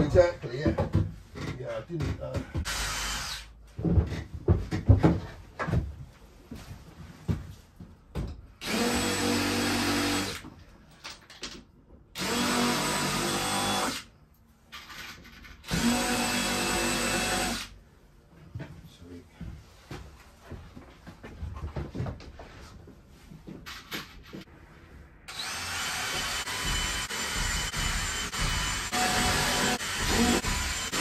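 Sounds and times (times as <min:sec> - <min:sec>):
cordless drill spinning: 0:02.7 - 0:03.5, 0:08.6 - 0:10.4, 0:12.2 - 0:14.1, 0:15.6 - 0:17.7, 0:25.3 - 0:31.0.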